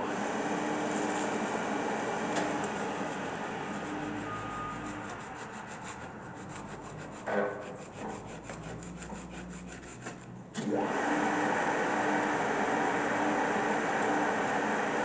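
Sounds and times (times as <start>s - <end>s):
motor spinning up with whine: 0.0s - 5.2s, 10.6s - 15.0s.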